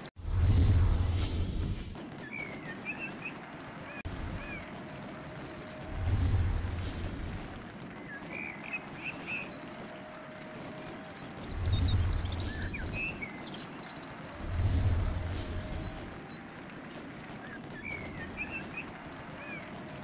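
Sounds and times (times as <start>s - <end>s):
low rumbling: 0.2s - 2.0s, 5.7s - 7.6s, 11.4s - 13.2s, 14.3s - 16.3s.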